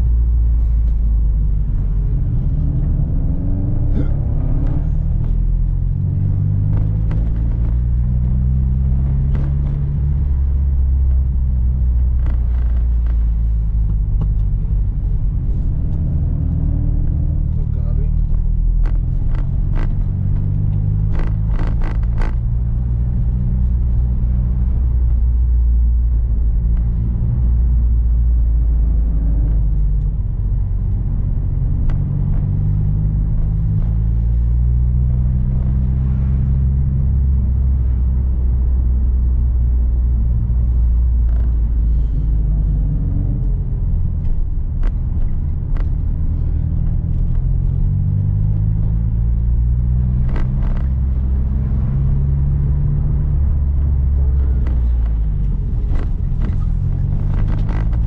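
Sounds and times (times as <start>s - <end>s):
car engine drone while driving: 0.0s - 58.0s.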